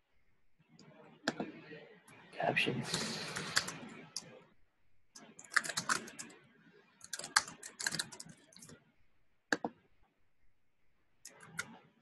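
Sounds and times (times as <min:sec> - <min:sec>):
typing on a keyboard: 0:02.9 - 0:03.8, 0:05.2 - 0:06.3, 0:07.0 - 0:08.8, 0:11.2 - 0:11.8.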